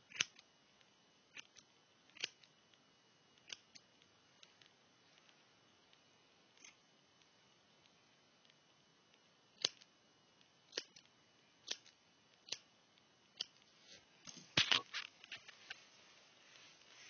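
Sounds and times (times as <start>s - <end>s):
scissors snipping hair: 0.1s - 0.4s, 1.3s - 2.5s, 3.4s - 3.8s, 6.6s - 6.8s, 9.6s - 9.9s, 10.7s - 12.7s, 13.3s - 13.6s.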